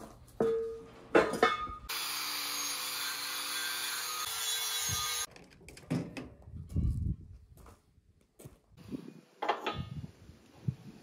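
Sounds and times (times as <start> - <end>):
metal clanks: 0.4 - 1.9.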